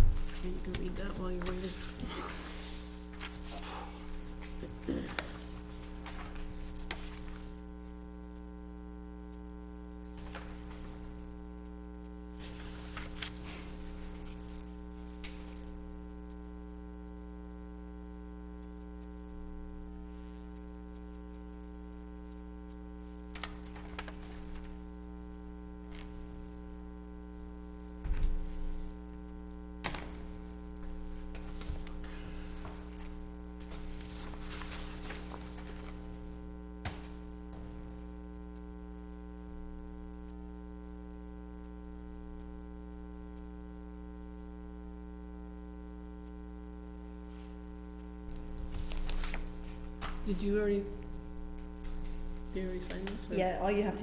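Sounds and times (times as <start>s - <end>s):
paper rustling: 0.0s - 7.7s, 10.2s - 11.4s, 12.4s - 16.0s, 23.4s - 24.9s, 25.9s - 26.5s, 29.8s - 38.0s, 48.3s - 53.3s
electrical mains hum: 0.0s - 54.0s.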